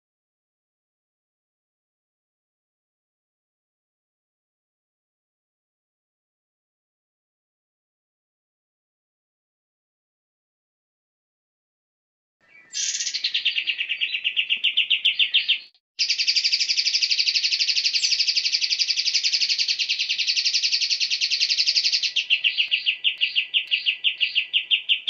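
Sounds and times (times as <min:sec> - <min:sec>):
songbird singing fast high trill: 0:12.4 - 0:25.0.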